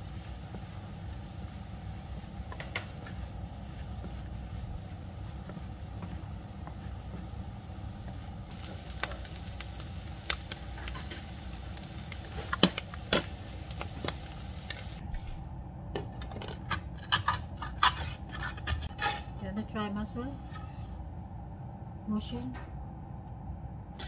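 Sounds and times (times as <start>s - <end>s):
butter sizzling: 0.0s - 15.0s
low hum: 0.0s - 17.8s, 18.4s - 24.0s
spatula scraping a frying pan: 16.6s - 19.4s, 20.3s - 21.0s.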